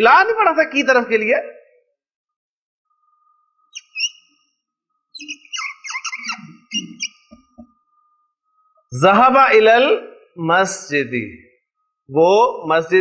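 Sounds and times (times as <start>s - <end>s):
whiteboard marker squeaking: 3.7s - 4.2s, 5.1s - 7.7s.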